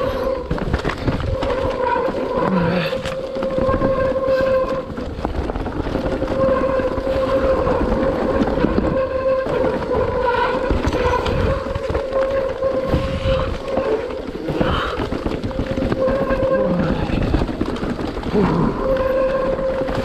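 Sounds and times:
bike buzzing hum: 0:00.0 - 0:20.0
tyres rumbling on trail: 0:00.0 - 0:20.0
wind on the microphone: 0:03.4 - 0:17.6.

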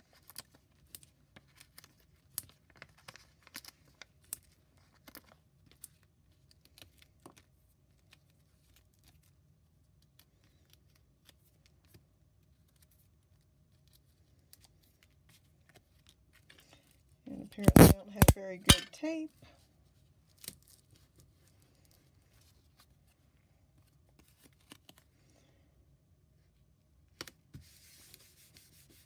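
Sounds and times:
paper clicks and rustles: 0:00.0 - 0:09.4.

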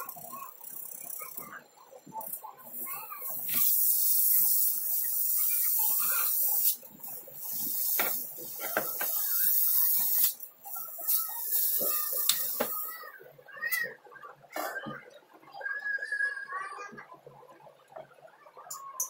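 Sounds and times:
refrigerator compressor hissing: 0:02.2 - 0:13.1.

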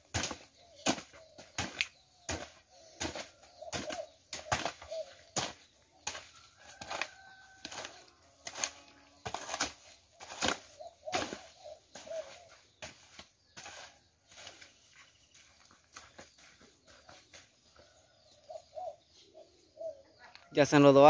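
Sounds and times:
hoes chopping damp earth: 0:00.0 - 0:14.7.

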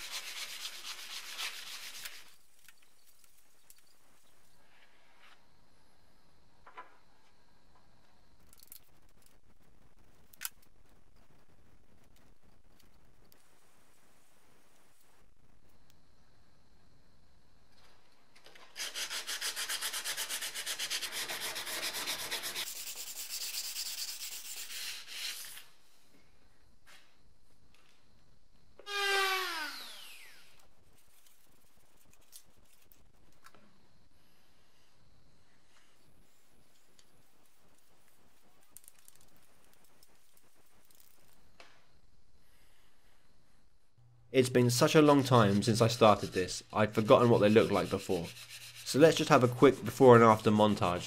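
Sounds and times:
faint rubbing and clicks: 0:07.8 - 0:16.0, 0:30.8 - 0:33.8, 0:35.6 - 0:41.9
power tool motor whining down: 0:28.9 - 0:30.5.

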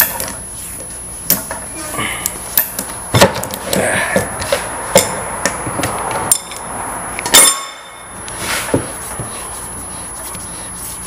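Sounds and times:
ringing metallic strike: 0:07.3 - 0:08.2.

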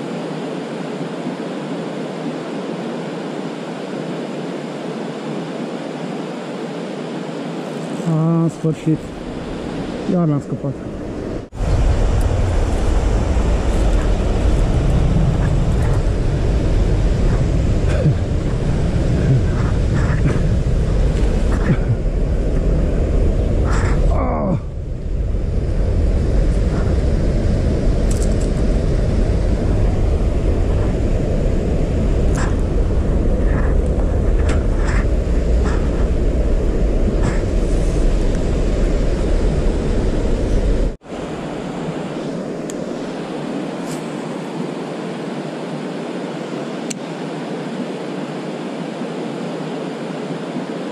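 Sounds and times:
wind buffeting microphone: 0:09.1 - 0:43.5.

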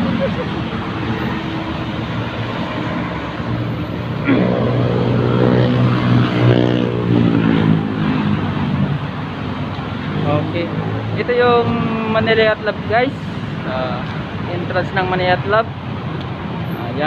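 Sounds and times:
vehicle engine passing by: 0:00.0 - 0:11.3
road traffic noise: 0:00.0 - 0:17.0.

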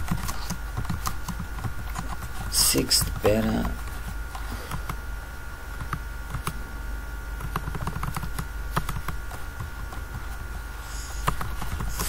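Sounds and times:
steady hum: 0:00.0 - 0:12.0
keyboard typing clicks: 0:07.4 - 0:10.3.

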